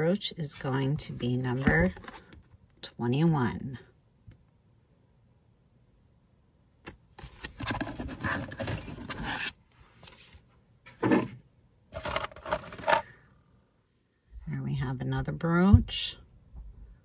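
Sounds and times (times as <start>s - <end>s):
metal jewelry clinking and scraping: 12.0s - 13.0s.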